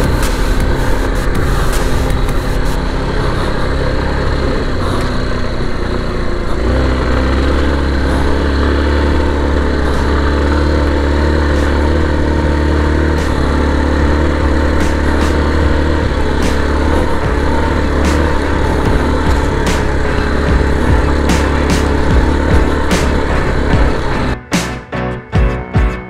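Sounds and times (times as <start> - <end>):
steady rushing noise: 0.0 - 24.7
motorcycle engine running: 0.0 - 26.0.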